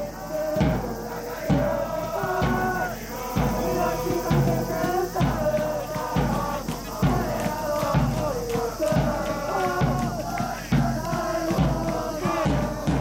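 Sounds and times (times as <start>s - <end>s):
bass drum beat: 0.0s - 13.0s
crowd chanting in unison: 0.0s - 13.0s.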